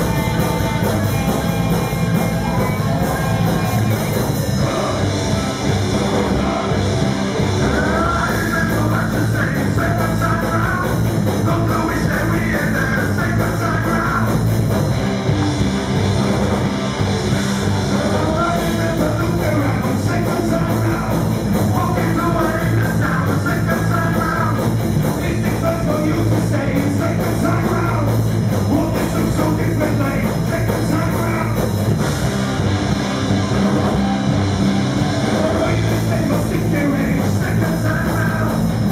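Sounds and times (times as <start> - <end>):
distorted electric guitars: 0.0 - 38.9
live rock band playing: 0.0 - 38.9
man singing: 2.8 - 14.5, 18.0 - 31.7, 35.3 - 38.9.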